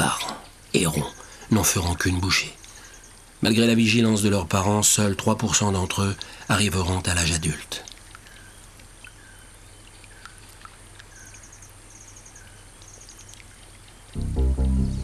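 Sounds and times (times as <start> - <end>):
music with low sustained notes: 14.2 - 15.0.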